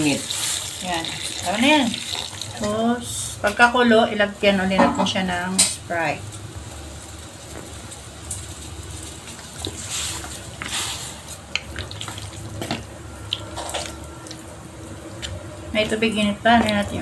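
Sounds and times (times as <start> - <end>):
running and splashing water: 0.0 - 2.7
low steady hum: 11.3 - 17.0.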